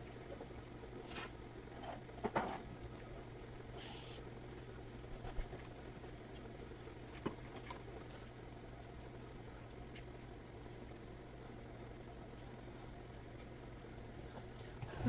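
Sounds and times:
steady low hum: 0.0 - 15.0
short hiss: 3.8 - 4.2.

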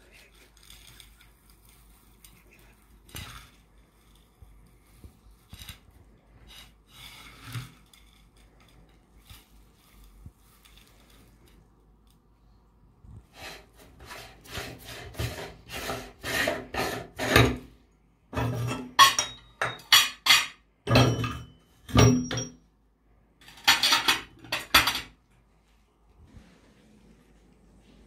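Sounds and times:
metal rasping scrapes: 5.5 - 8.9, 13.3 - 17.7
metal parts clanking: 23.4 - 25.1.

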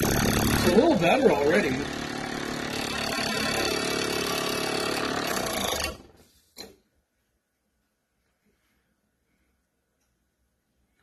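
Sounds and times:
unbalanced fan running: 0.0 - 6.2.

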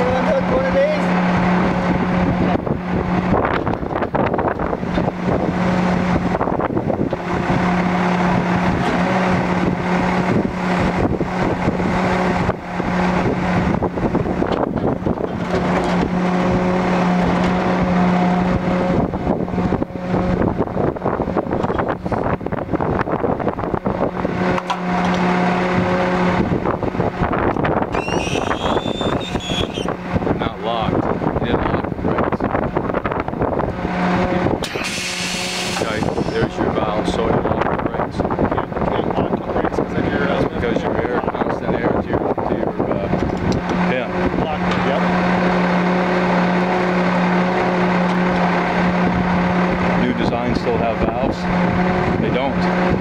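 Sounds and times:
diesel engine running: 0.0 - 53.0
steady hydraulic hum: 27.7 - 30.3, 33.4 - 37.2.

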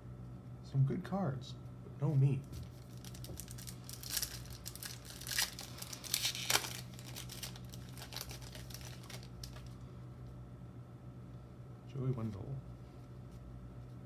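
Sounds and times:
wrapper and cards rustling: 2.4 - 9.8
foil wrapper tearing: 2.7 - 9.8.

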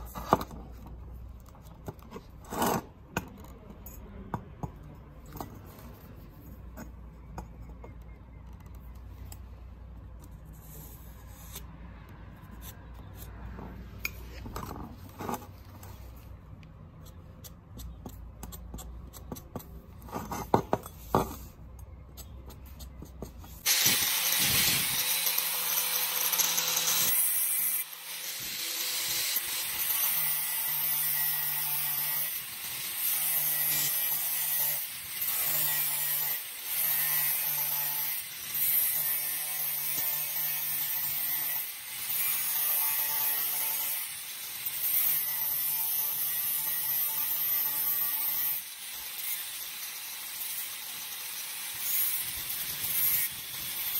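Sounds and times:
angle grinder cutting steel: 23.6 - 53.9.

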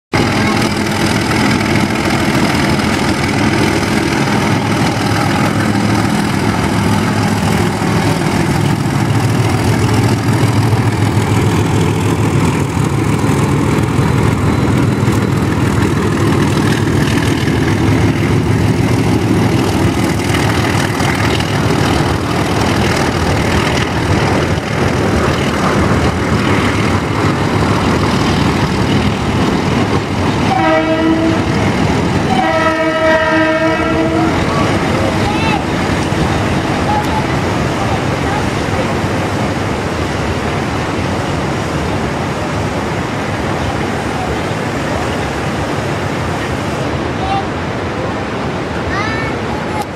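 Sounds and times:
diesel locomotive engine rumbling: 0.1 - 49.9
train horn: 30.5 - 31.6, 32.3 - 34.8.

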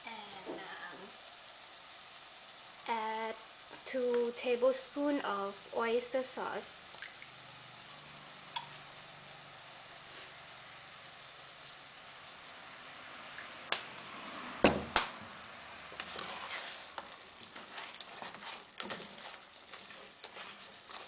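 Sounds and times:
food sizzling faintly in a pot: 0.0 - 21.0
plastic spatula scraping a pot: 16.0 - 21.0.

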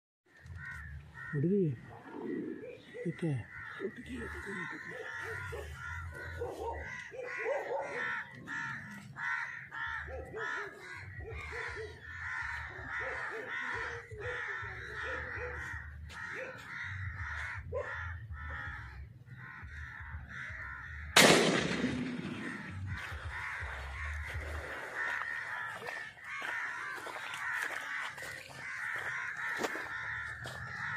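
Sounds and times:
birds calling rapidly: 0.3 - 30.9
shotgun shot: 21.2 - 22.9.

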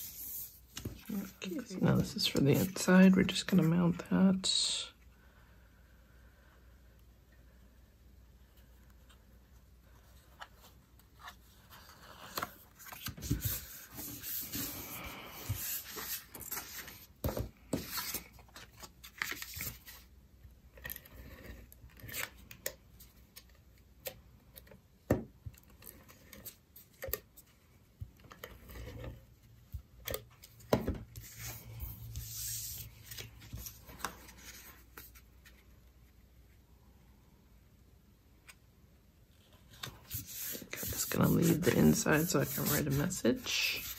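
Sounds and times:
paper sliding and rubbing: 0.0 - 1.4, 10.2 - 20.0, 31.2 - 35.6, 39.4 - 43.9.

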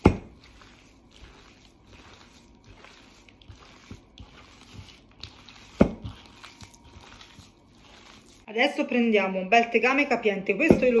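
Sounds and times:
hands kneading wet meat: 0.0 - 8.5.

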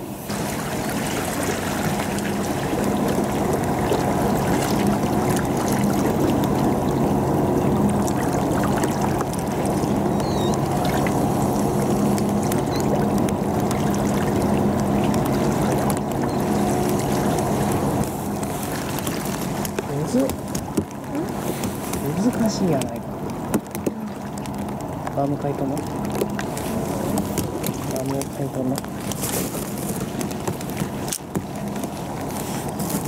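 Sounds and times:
low mechanical hum: 0.0 - 33.0
light rain tapping: 9.2 - 33.0.

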